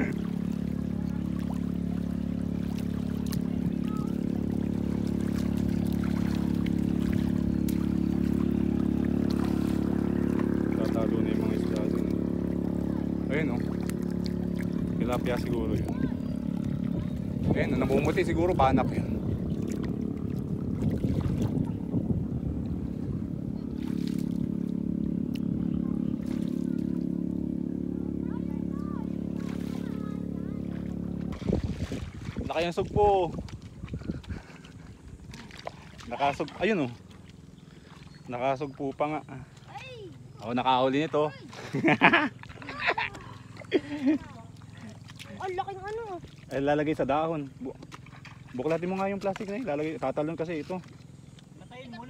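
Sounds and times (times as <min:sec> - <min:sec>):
boat engine drone: 0:00.0 - 0:52.0
shallow water sloshing: 0:00.0 - 0:52.0
small splashes: 0:00.0 - 0:52.0
steady low hum: 0:00.0 - 0:52.0.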